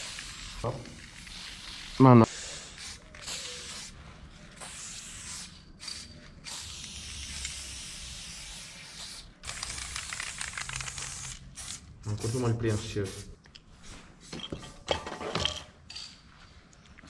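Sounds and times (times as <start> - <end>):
spray paint can hissing: 0.0 - 13.4.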